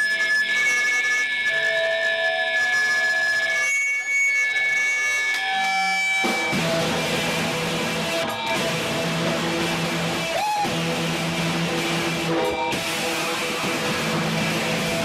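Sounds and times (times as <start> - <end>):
punk band playing live: 5.4 - 15.0.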